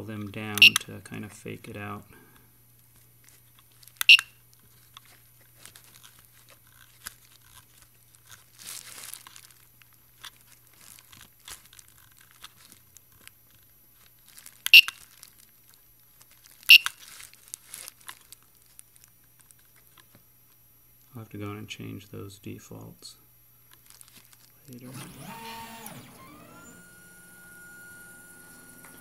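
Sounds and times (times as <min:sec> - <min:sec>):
short buzzer beeps: 0:00.6 - 0:00.8, 0:04.1 - 0:04.4
crinkling rustle: 0:02.8 - 0:21.1, 0:23.6 - 0:24.9.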